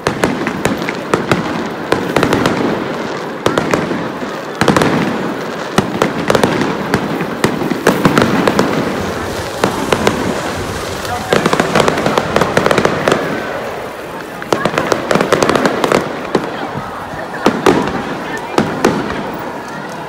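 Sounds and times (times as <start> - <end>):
fireworks bangs: 0.0 - 20.0
fireworks crackling: 0.0 - 20.0.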